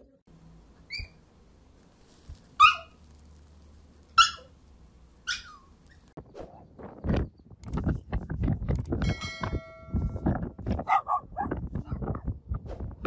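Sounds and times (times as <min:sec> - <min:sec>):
puppy yapping: 0:00.9 - 0:01.2, 0:02.6 - 0:03.0, 0:04.2 - 0:04.6, 0:05.2 - 0:06.0
wind buffeting microphone: 0:06.2 - 0:13.0.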